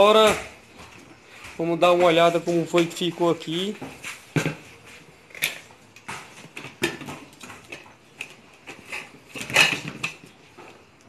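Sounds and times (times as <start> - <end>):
metal lid clatter: 8.8 - 10.2.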